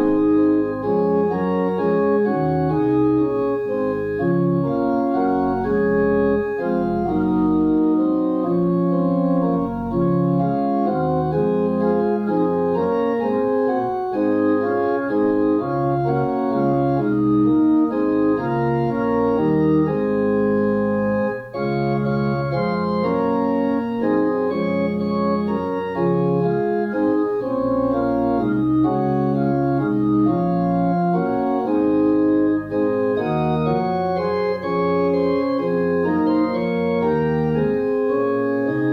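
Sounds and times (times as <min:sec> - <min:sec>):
organ playing held chords: 0:00.0 - 0:38.9.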